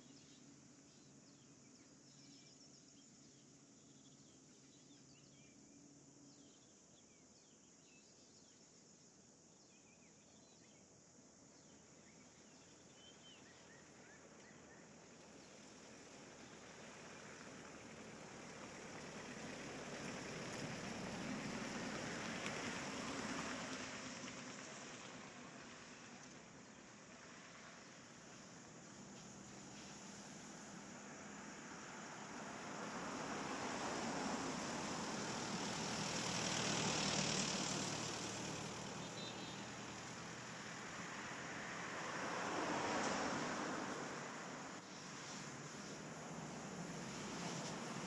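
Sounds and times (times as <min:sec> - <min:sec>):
car driving past: 0:15.6 - 0:48.0.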